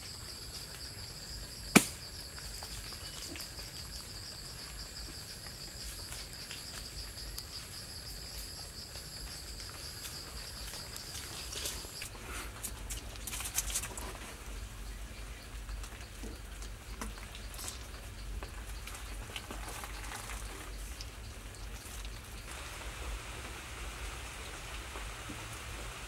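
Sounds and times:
insects chirring: 0.0s - 26.0s
sharp knock: 1.7s - 2.0s.

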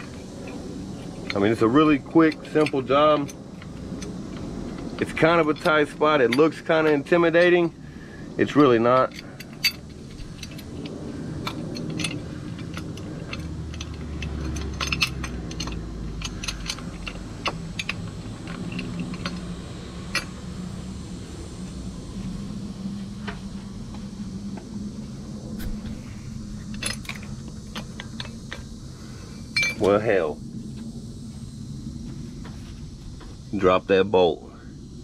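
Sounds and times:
steady low hum: 0.0s - 35.0s
metal clinks of socket and bolt: 8.5s - 19.5s, 29.6s - 30.0s.

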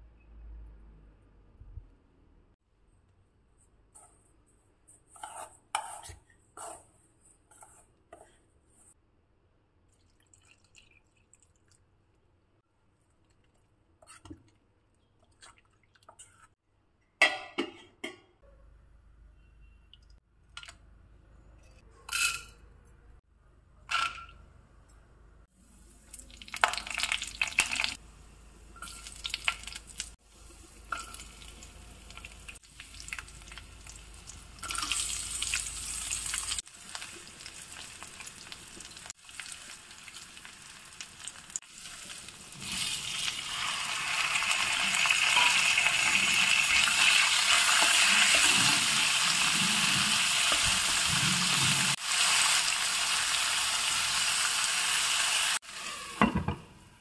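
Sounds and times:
oil sizzling: 25.6s - 56.6s.

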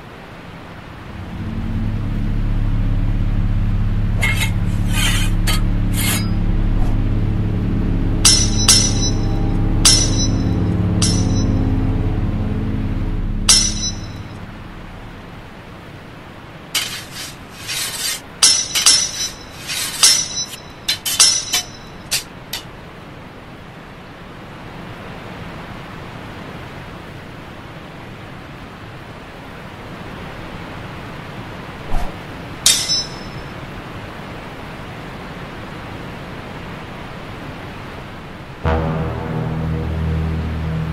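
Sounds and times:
rushing waterfall: 0.0s - 1.5s, 15.0s - 38.7s
steel blades clashing: 4.2s - 6.4s, 8.2s - 11.6s, 13.5s - 14.4s, 16.8s - 22.7s, 32.6s - 33.4s.

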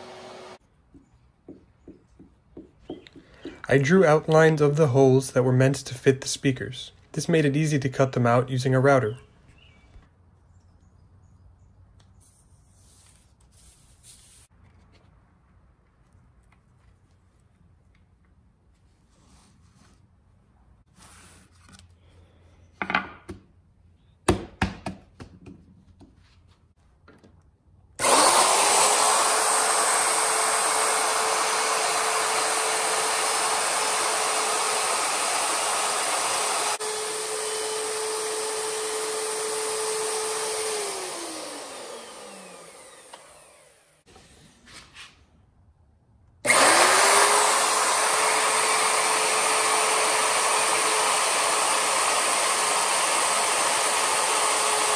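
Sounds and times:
router whining cutting plywood: 0.0s - 0.6s, 28.0s - 44.0s, 46.5s - 54.9s.

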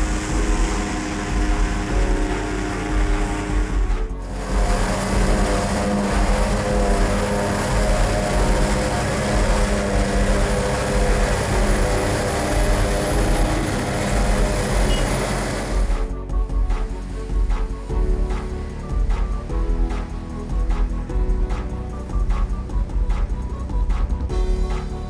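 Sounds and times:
forage harvester engine and chopping: 0.0s - 16.2s.

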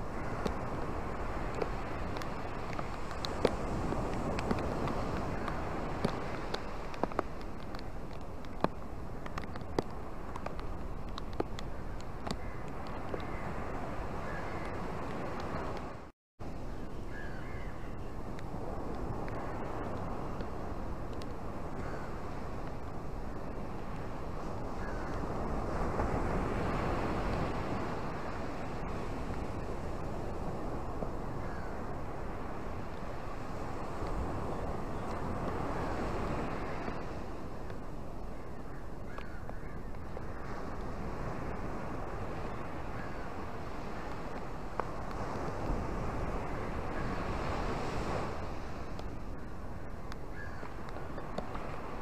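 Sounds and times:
ocean surf breaking: 40.4s - 52.0s.

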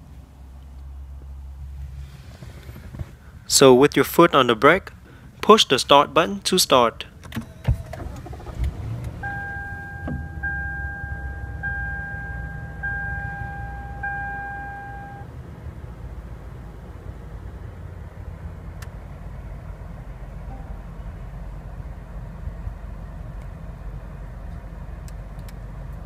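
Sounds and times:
car engine starting and idling: 0.0s - 26.0s
dashboard warning chime beeping: 9.1s - 15.2s, 20.5s - 21.1s.

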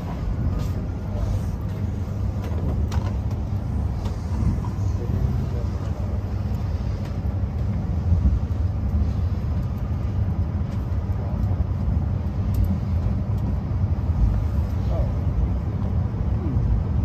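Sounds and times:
train cabin rumble: 0.0s - 17.0s.

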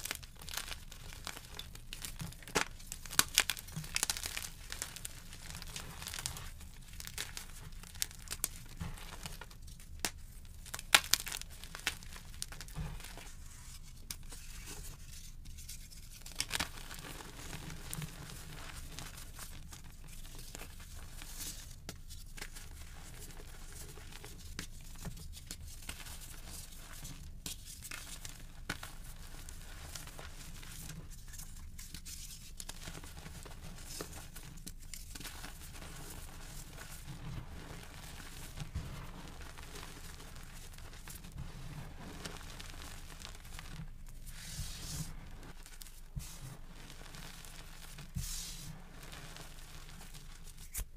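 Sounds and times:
sharp chalk cracks: 0.0s - 9.4s, 10.0s - 13.3s, 49.7s - 50.9s
soft chalk powder crumbling: 0.0s - 50.9s.

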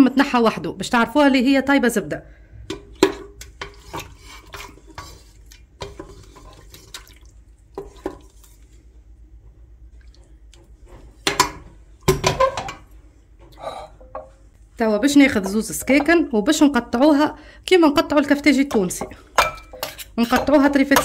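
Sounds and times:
utensils clinking on pot and plate: 18.7s - 21.0s.

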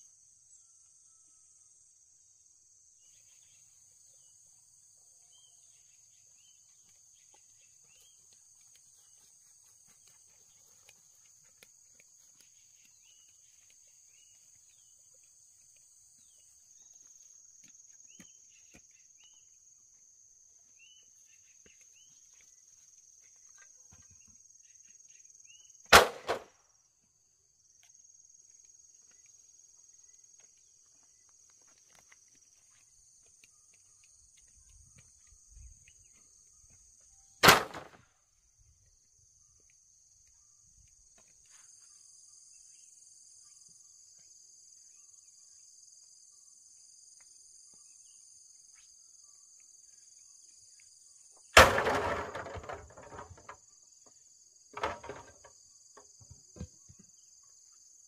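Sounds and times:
insects droning: 0.0s - 58.0s
sharp knock: 25.9s - 26.5s.

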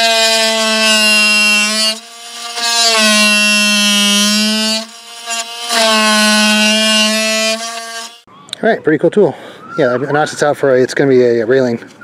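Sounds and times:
oscillating multi-tool cutting wood: 0.0s - 8.3s.

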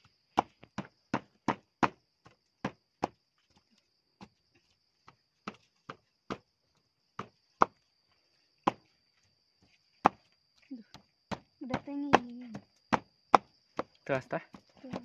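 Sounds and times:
wooden pestle knocking in mortar: 11.3s - 15.0s.

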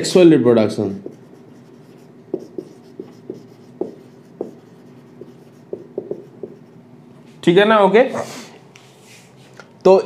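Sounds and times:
faint steady hum: 0.0s - 10.0s
marker pen writing on whiteboard: 0.9s - 6.9s.

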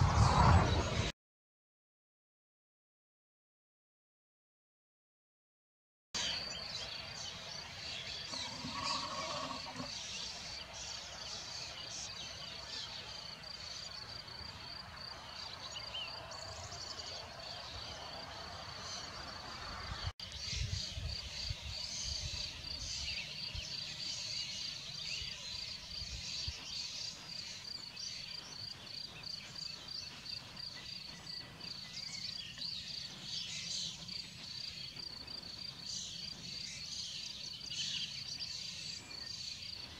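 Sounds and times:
low rumble: 0.0s - 1.1s
short bird calls: 8.2s - 10.1s
insects chirping in a high trill: 8.2s - 10.2s.

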